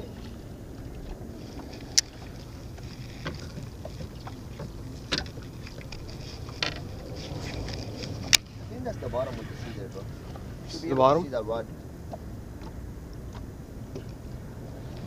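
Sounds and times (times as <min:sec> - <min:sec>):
low background rumble: 0:00.0 - 0:15.0
fishing gear knocking in plastic boat: 0:03.0 - 0:08.4.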